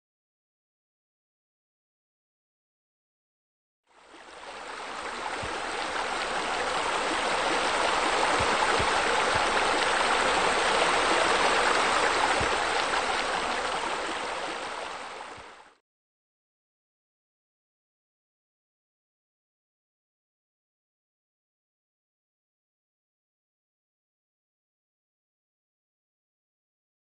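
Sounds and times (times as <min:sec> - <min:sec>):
rushing splashing water: 0:04.0 - 0:15.8.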